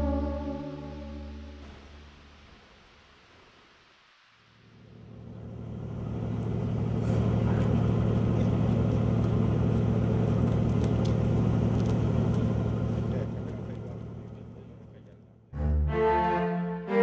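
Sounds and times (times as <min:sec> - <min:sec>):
engine idling: 0:05.1 - 0:15.2.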